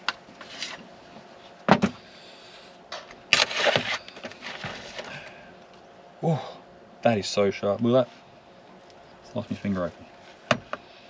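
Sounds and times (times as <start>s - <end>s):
rustling scraping clatter: 3.3s - 5.1s.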